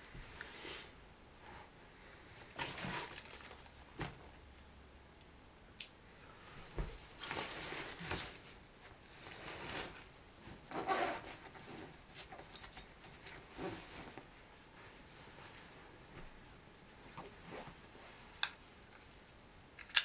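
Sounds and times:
clothes and bags rustling: 1.4s - 4.4s, 6.5s - 18.8s.

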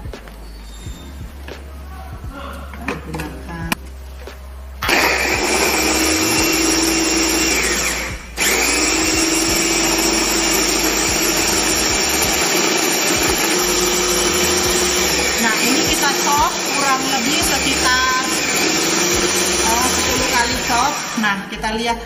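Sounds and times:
electric chopper motor running: 4.8s - 21.2s.

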